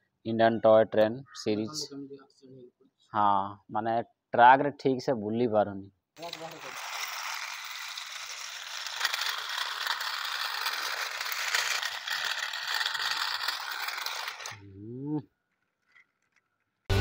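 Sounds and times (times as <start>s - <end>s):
toy train rattling on track: 6.2s - 14.6s, 15.5s - 16.8s.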